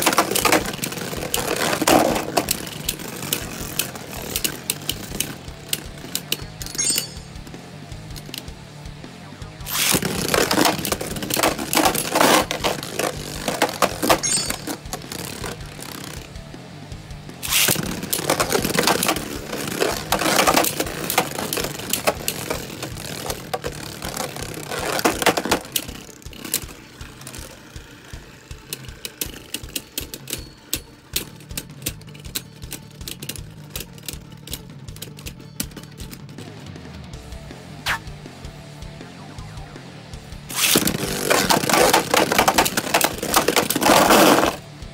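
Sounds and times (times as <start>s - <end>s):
spinning tops clattering: 0.0s - 7.4s, 9.7s - 16.3s, 17.4s - 32.5s, 40.5s - 44.6s
background music: 0.0s - 44.9s.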